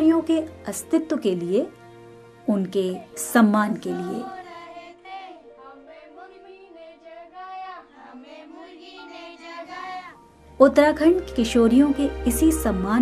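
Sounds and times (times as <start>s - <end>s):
girls singing quietly: 3.7s - 10.3s.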